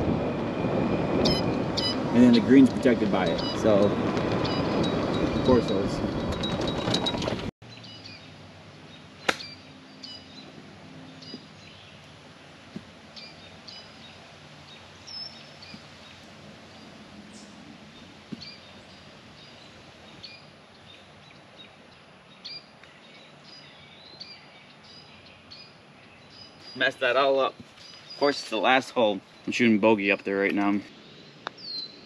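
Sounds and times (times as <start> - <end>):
small birds chirping: 1.2 - 5.9, 7.6 - 32.0
golf club striking ball: 9.2 - 9.6.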